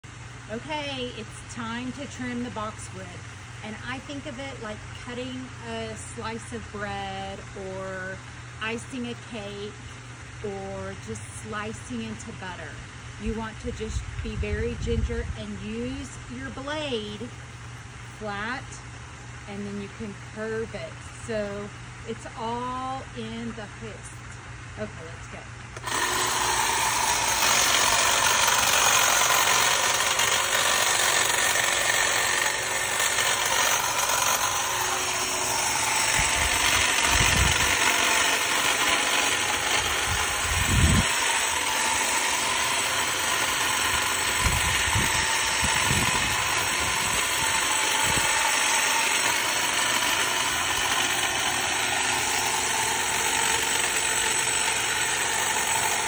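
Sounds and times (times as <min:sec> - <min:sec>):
hedge trimmer running: 0:00.0 - 0:10.0, 0:25.7 - 0:56.0.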